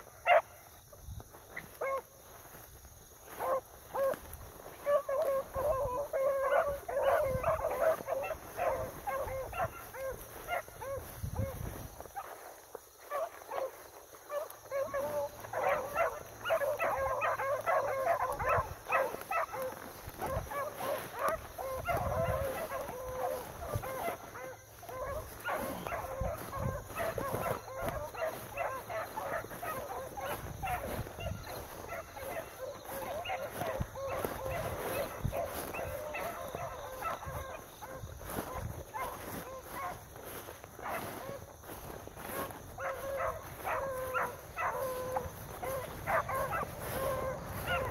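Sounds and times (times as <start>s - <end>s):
beagles baying: 3.2s - 47.9s.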